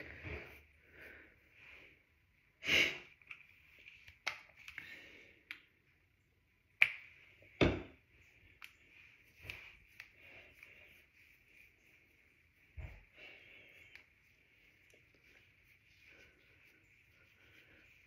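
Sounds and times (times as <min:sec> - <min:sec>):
soft rustling: 0:08.1 - 0:18.0.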